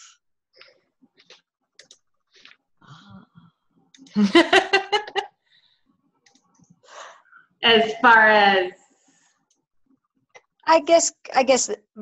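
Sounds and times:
woman laughing: 0:04.1 - 0:05.3.

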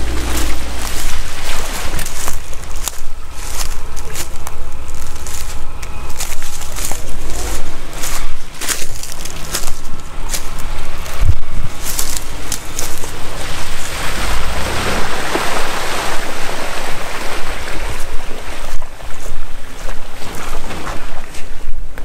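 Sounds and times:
vehicle engine running: 0:00.0 - 0:22.0
wind buffeting microphone: 0:00.0 - 0:22.0.

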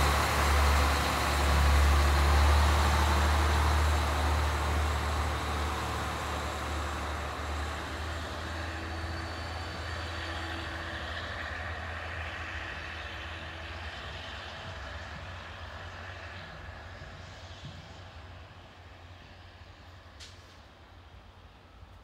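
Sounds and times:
train rumble and hum: 0:00.0 - 0:22.0
train whine: 0:00.0 - 0:22.0.

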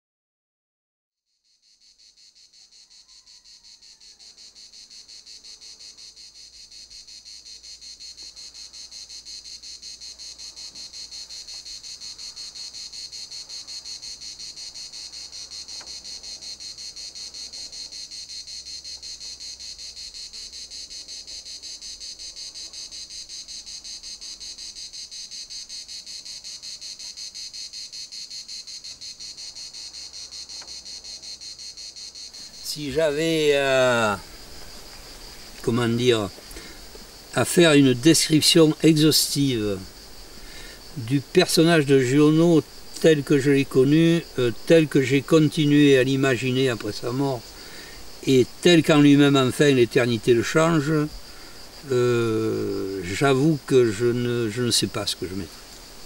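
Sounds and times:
cicadas buzzing: 0:01.3 - 0:56.0.

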